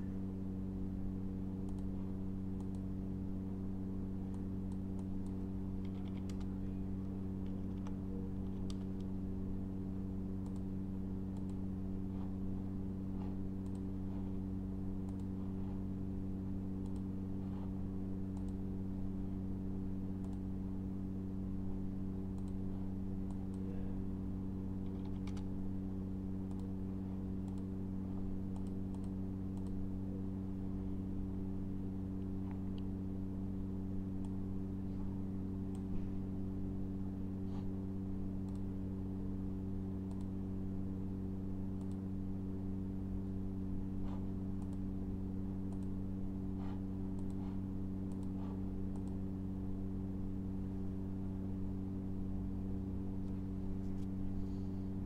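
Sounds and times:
low electrical hum: 0.0 - 55.0
computer mouse clicks: 1.6 - 1.9, 2.5 - 2.9, 4.3 - 6.5, 7.4 - 9.1, 10.4 - 10.7, 11.3 - 11.6, 13.2 - 13.9, 15.0 - 15.4, 16.8 - 17.1, 18.3 - 18.6, 20.2 - 20.4, 22.3 - 22.6, 24.8 - 25.5, 26.4 - 26.8, 27.4 - 27.8, 28.5 - 29.8, 38.4 - 38.7, 40.1 - 40.4, 41.8 - 42.1, 44.1 - 44.9, 45.7 - 46.0, 46.6 - 49.3.

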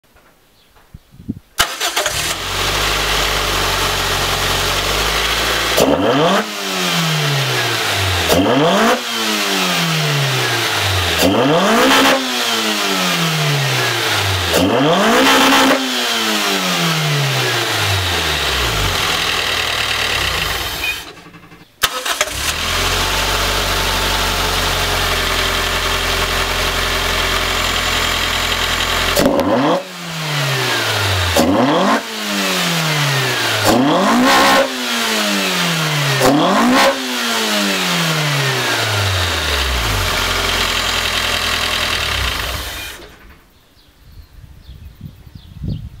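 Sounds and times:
engine throttle blips: 1.6 - 43.5
car engine idling: 1.9 - 11.8, 12.6 - 29.4, 35.2 - 43.6.

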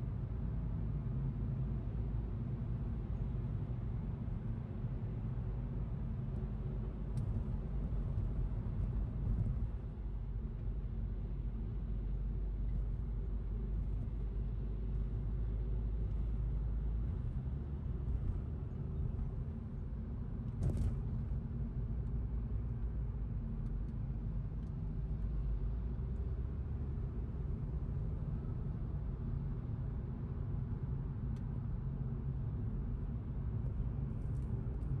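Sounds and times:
road and tyre noise in car: 0.0 - 35.0.

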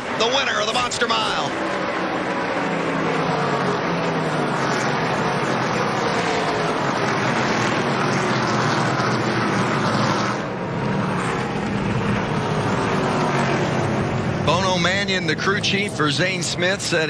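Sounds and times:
race truck engines droning: 0.0 - 17.0.

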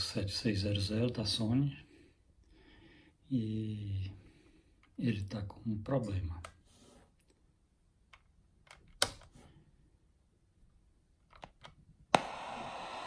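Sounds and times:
radio static hiss: 12.2 - 13.0.

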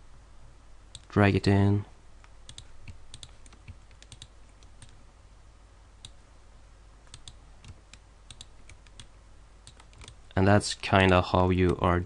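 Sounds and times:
low steady hum: 0.0 - 12.0
mouse and keyboard clicks: 2.2 - 5.0, 7.1 - 9.1, 9.7 - 10.2.

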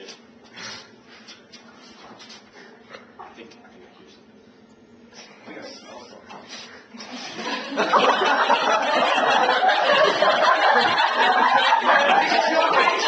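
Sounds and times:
students laughing and chattering: 6.9 - 13.0.

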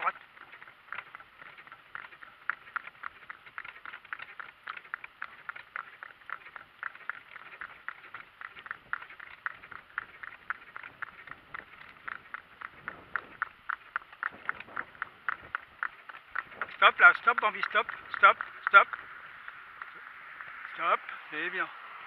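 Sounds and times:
donkey hooves clip-clopping: 0.0 - 22.0.

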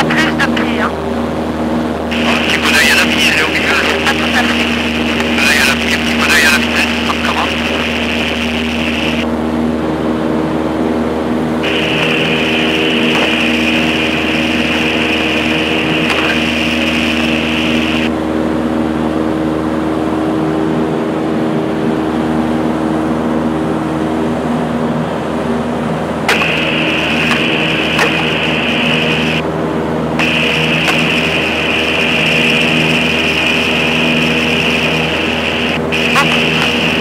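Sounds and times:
aircraft engine and propeller: 0.0 - 37.0.

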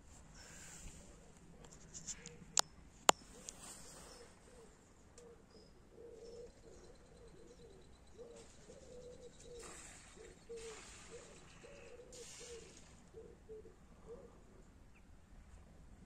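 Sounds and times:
dove cooing: 3.2 - 14.7
soft hiss: 10.6 - 13.1.

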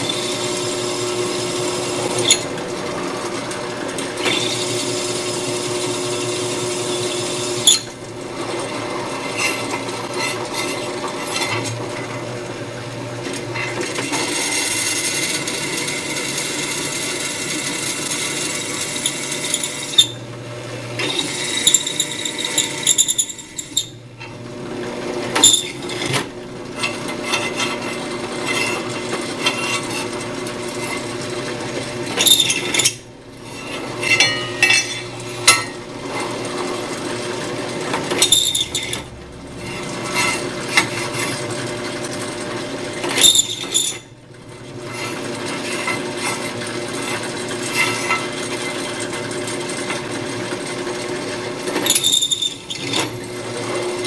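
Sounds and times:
drill boring into metal: 0.0 - 2.6, 4.0 - 11.8, 13.6 - 20.3, 21.0 - 24.0, 25.3 - 26.1, 32.0 - 36.4, 38.0 - 41.6, 43.0 - 44.1, 44.9 - 54.0
drill press motor running: 0.0 - 54.0.

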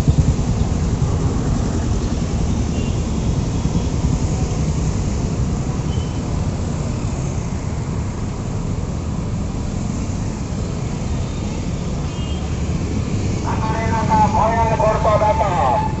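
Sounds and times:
traffic passing: 0.0 - 16.0.

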